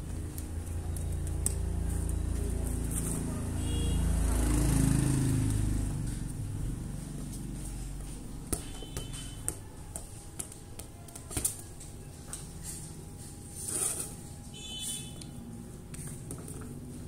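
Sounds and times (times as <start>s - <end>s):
plastic ball tapping on concrete: 8.4s - 12.6s.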